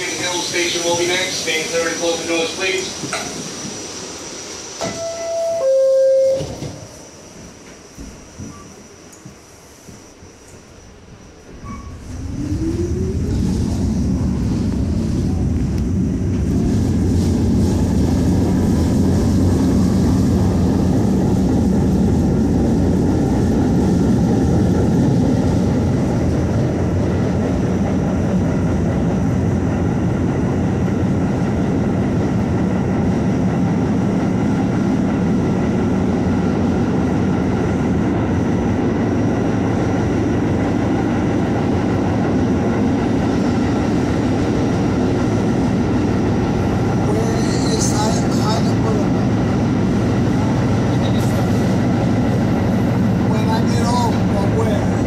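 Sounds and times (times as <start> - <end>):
rumble of train wheels on rails: 0.0 - 55.0.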